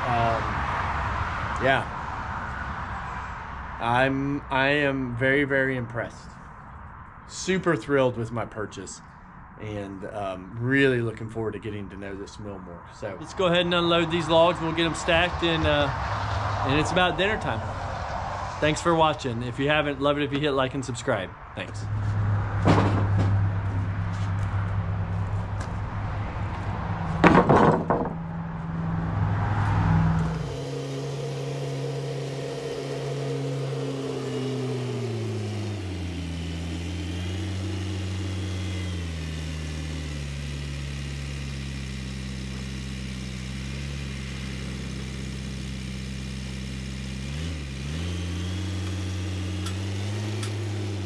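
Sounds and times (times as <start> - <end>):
tractor engine running: 21.8 - 51.0
lumber boards clattering: 27.2 - 28.2.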